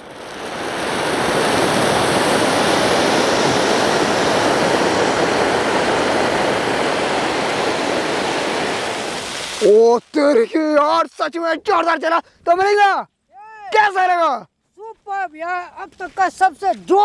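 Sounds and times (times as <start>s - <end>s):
firework fountain hissing: 0.0s - 10.7s.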